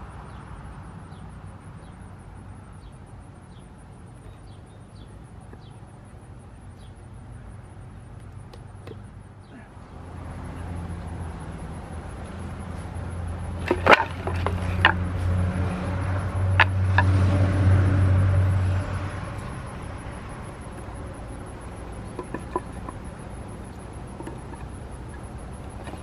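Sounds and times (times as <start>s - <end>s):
low engine drone: 9.8s - 26.0s
wood pieces knocking together: 13.6s - 15.1s, 20.4s - 26.0s.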